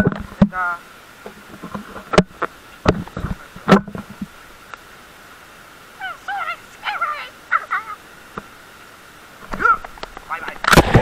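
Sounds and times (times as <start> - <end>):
knocks and bumps on microphone: 1.2 - 4.3
boy whooping: 6.0 - 8.0.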